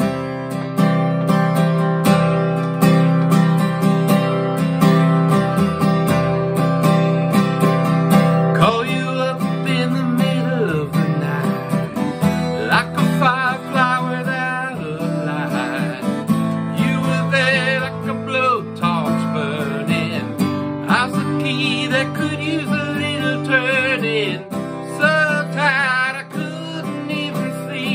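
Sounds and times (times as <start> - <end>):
acoustic guitar strumming: 0.0 - 27.9
man singing: 8.3 - 27.9.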